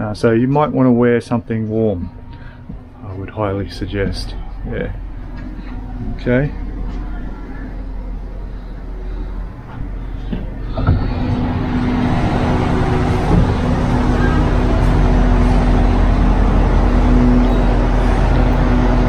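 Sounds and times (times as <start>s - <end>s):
diesel train engines droning: 0.0s - 19.0s
train door opening click: 10.3s - 15.7s.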